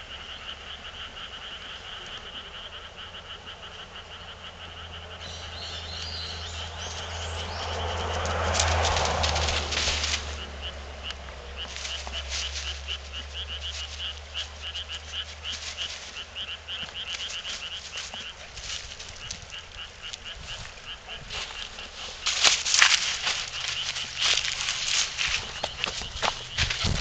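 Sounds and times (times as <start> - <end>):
frog croaking: 0.0 - 27.0
rustling and knocking: 22.2 - 27.0.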